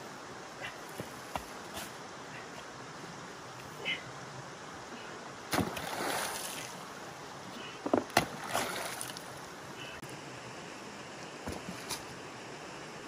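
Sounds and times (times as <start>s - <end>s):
shallow stream flowing: 0.0s - 13.0s
hoe chopping into earth: 5.5s - 6.3s.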